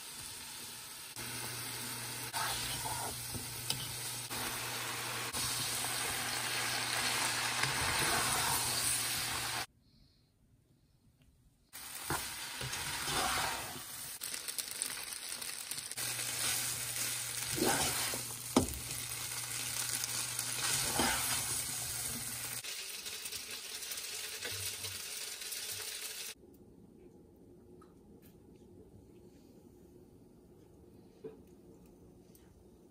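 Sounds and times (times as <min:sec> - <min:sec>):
noodles sizzling in a wok: 0:00.0 - 0:09.7, 0:11.8 - 0:26.4.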